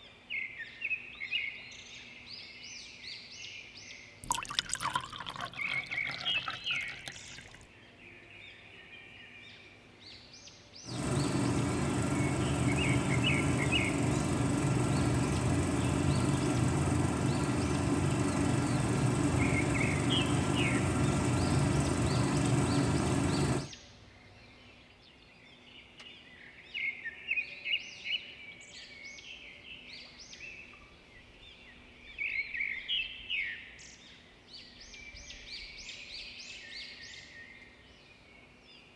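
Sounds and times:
water pouring: 4.2s - 7.7s
birds chirping: 4.3s - 7.6s, 10.9s - 23.7s
small electric motor running: 10.9s - 23.7s.

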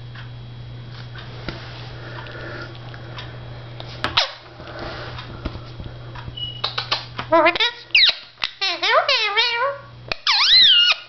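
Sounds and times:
parakeet muttering: 6.4s - 11.0s
parakeet chatter: 6.7s - 11.0s.

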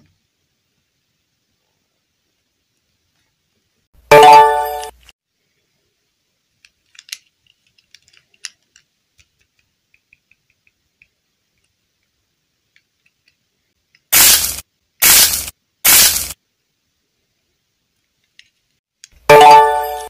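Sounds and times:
hiss-like noise bursts: 14.1s - 16.9s.

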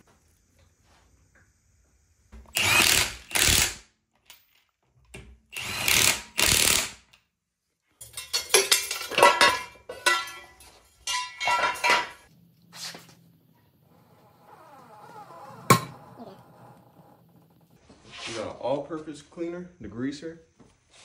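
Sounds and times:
impact wrench bursts: 2.4s - 3.9s, 5.5s - 7.1s.

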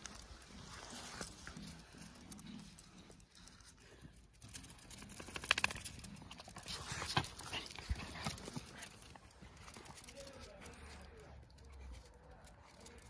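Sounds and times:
dog claws clicking on tiles: 4.4s - 13.0s.

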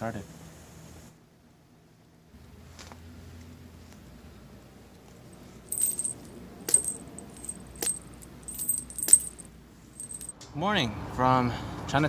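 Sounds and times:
metal coins jingling on mallet: 5.7s - 10.3s.

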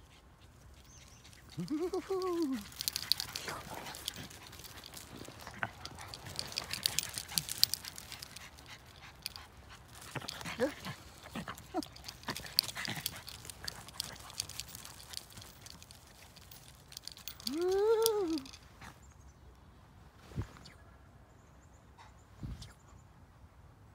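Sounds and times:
paws scuffling through wood chips: 0.9s - 17.5s
dog whimpers: 1.5s - 3.1s.

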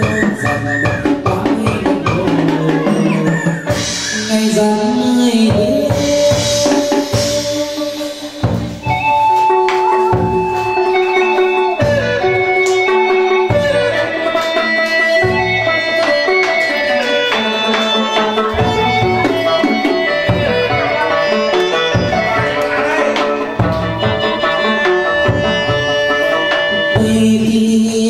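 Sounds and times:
drum strokes: 0.0s - 27.8s
plucked lute notes: 8.6s - 27.6s.

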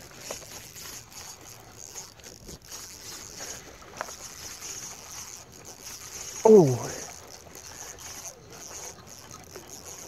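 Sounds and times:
faint outdoor hiss: 3.6s - 9.8s.

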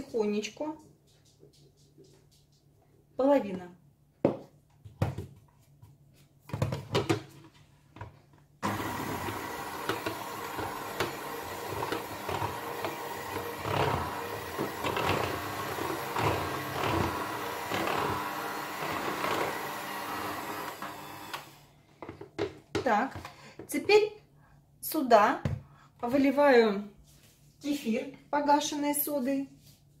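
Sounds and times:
electric hand mixer running: 8.6s - 21.8s.

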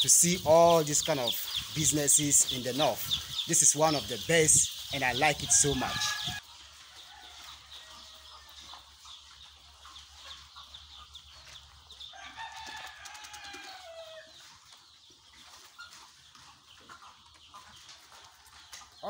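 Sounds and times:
chickens clucking: 0.0s - 19.0s
rooster crowing: 5.5s - 6.4s, 12.1s - 14.3s.

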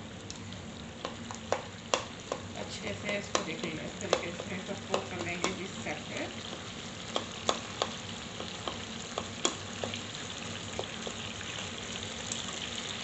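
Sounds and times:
food sizzling in oil: 0.0s - 13.0s
spoon knocking and scraping pan: 1.0s - 10.1s.

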